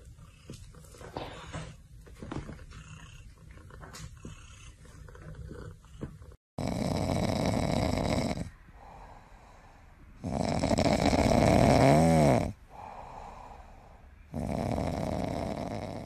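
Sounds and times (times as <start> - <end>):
pet snoring loudly: 6.6 - 16.0
whistling snore tone: 10.2 - 12.6, 14.3 - 16.0.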